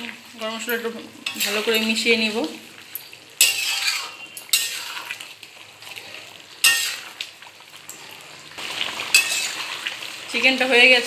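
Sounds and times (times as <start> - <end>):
curry sizzling: 0.0 - 11.0
metal spatula scraping pan: 1.2 - 2.2, 2.9 - 7.2, 9.1 - 9.8.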